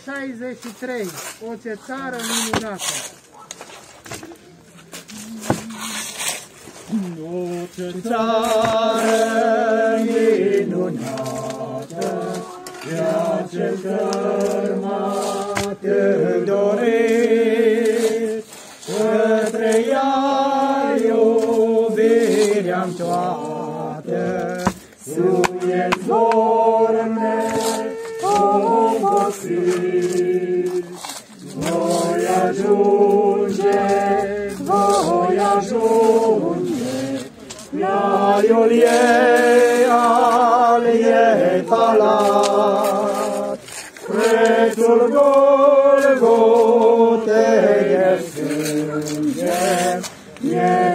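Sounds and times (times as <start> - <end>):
voices singing a hymn: 5.1 - 50.9.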